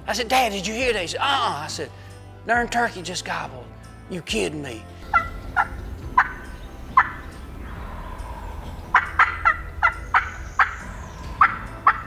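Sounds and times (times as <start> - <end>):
wild turkey calling: 5.0 - 12.0.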